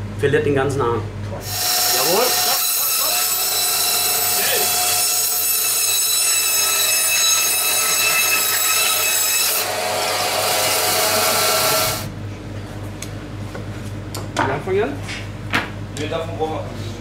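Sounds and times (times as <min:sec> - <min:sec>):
band saw cutting meat and bone: 0:01.4 - 0:12.1.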